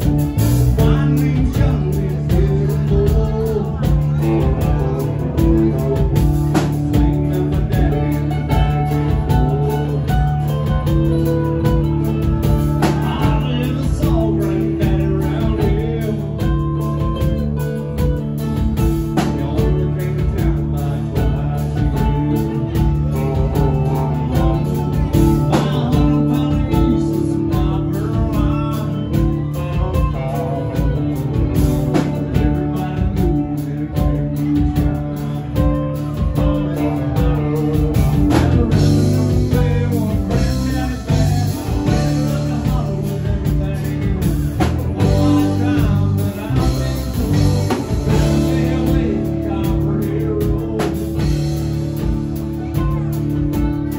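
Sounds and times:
drum kit: 0:00.0 - 0:53.9
electric guitar: 0:00.0 - 0:53.9
man singing: 0:00.0 - 0:53.9
mandolin: 0:00.0 - 0:53.9.

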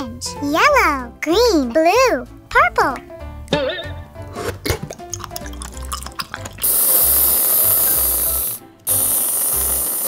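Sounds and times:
background music: 0:00.0 - 0:10.0
whipped cream can spraying: 0:06.4 - 0:10.0.

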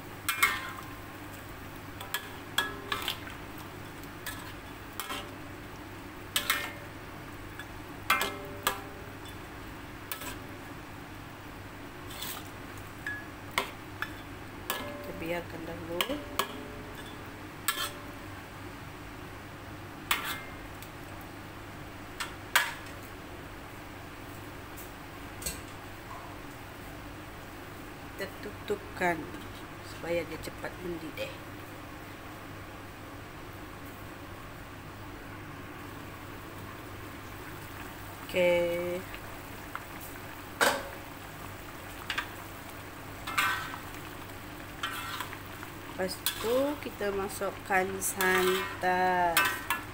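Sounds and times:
low steady hiss: 0:00.0 - 0:49.9
steady background noise: 0:00.0 - 0:49.9.

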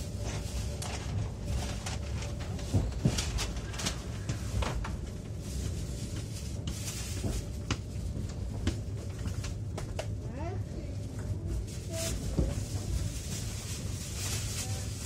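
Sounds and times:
train carriage rumble: 0:00.0 - 0:15.0
knocks and clicks from train car: 0:02.2 - 0:05.1, 0:06.1 - 0:10.3.

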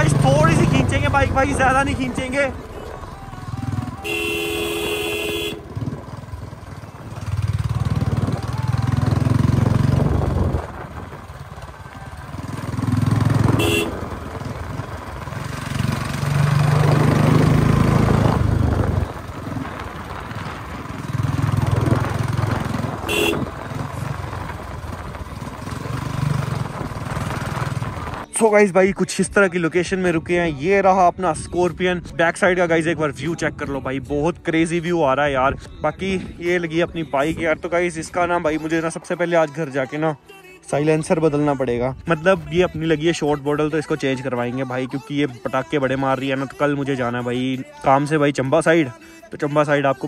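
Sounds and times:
motorcycle engine revving: 0:00.0 - 0:28.3
horn tooting: 0:02.3 - 0:09.3, 0:12.0 - 0:19.7, 0:20.9 - 0:24.5.

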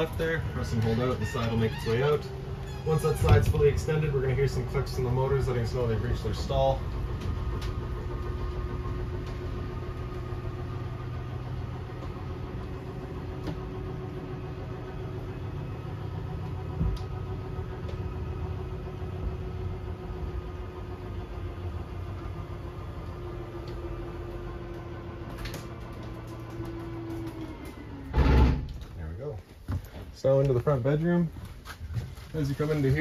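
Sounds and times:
electric motors humming: 0:00.0 - 0:28.9
thump: 0:28.1 - 0:28.7.

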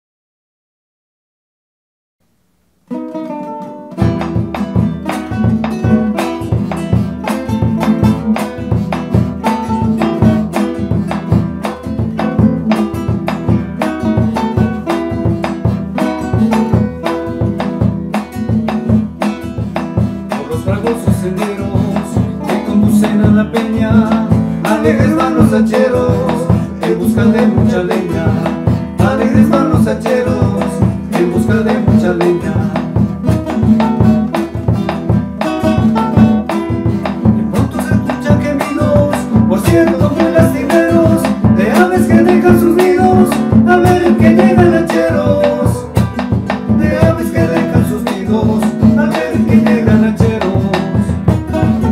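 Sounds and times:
two acoustic guitars playing: 0:02.2 - 0:51.9
men singing together: 0:20.3 - 0:33.3, 0:37.5 - 0:51.9.

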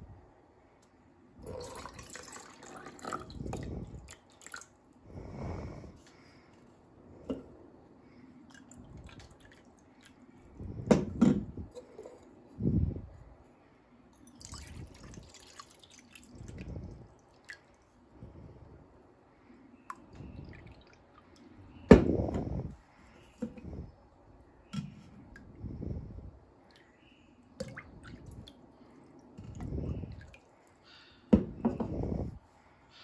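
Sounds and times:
water pouring into metal cups: 0:01.4 - 0:04.7, 0:14.2 - 0:17.7
cups knocking on table: 0:31.3 - 0:31.9.

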